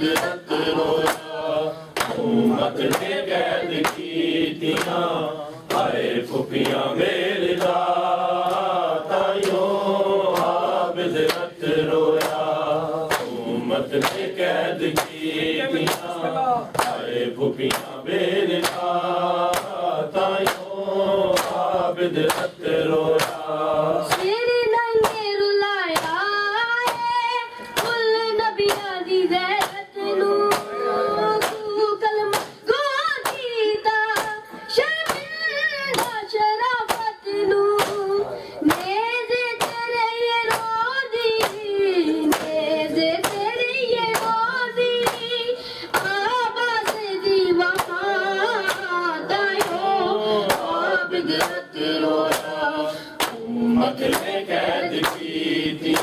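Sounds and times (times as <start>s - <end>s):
hands slapping bare chests: 0.0s - 25.3s, 25.9s - 28.0s, 29.6s - 29.9s, 30.5s - 30.8s, 31.4s - 31.7s, 32.3s - 33.5s, 34.1s - 36.2s, 36.8s - 37.2s, 37.8s - 44.4s, 45.0s - 45.3s, 45.9s - 47.1s, 47.7s - 56.0s
person chanting over a microphone: 9.1s - 33.4s, 37.0s - 56.0s.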